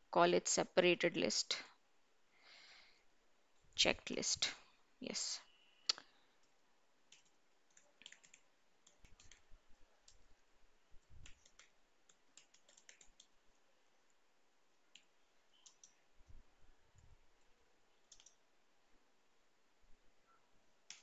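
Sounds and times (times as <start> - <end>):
computer keyboard typing: 7.1 - 10.3, 11.2 - 13.4, 14.9 - 16.0, 18.0 - 18.4.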